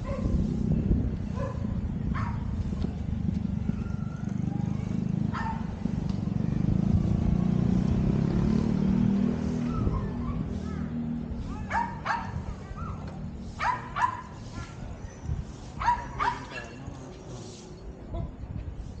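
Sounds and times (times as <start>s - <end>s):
dog barking: 0.0s - 0.4s, 1.3s - 2.5s, 5.3s - 5.7s, 11.5s - 14.4s, 15.8s - 16.8s
wind rumble on microphone: 0.0s - 19.0s.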